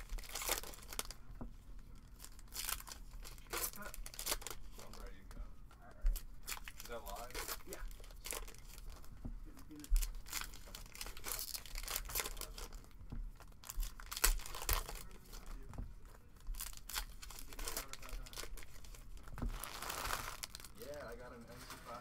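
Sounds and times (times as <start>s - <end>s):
foil wrapper crinkling and tearing: 0.0s - 1.2s, 2.0s - 5.3s, 6.1s - 15.7s, 16.4s - 20.8s.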